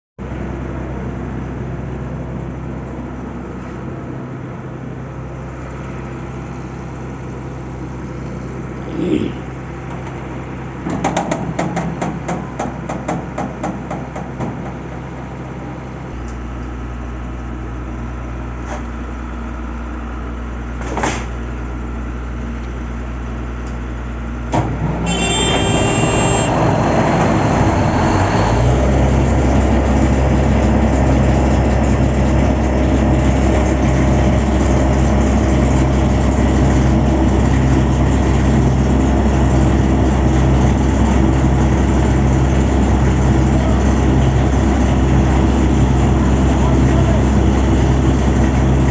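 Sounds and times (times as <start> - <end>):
diesel compressor engine running: 0.2 - 48.9
low engine hum: 0.2 - 48.9
knocks: 10.8 - 14.8.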